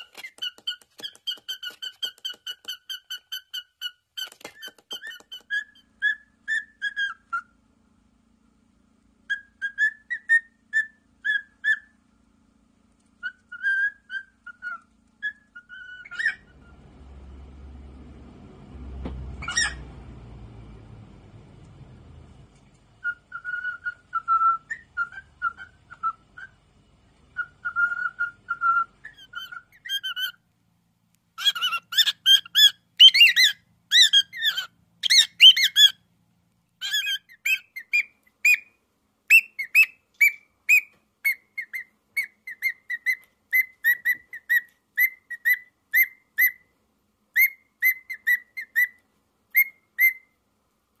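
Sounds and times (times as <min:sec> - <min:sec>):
cockatiels whistling: 0:00.0 - 0:07.6, 0:09.2 - 0:12.0, 0:13.2 - 0:16.8, 0:19.4 - 0:19.9, 0:23.0 - 0:26.6, 0:27.3 - 0:30.4, 0:31.4 - 0:36.0, 0:36.8 - 0:46.7, 0:47.3 - 0:50.4.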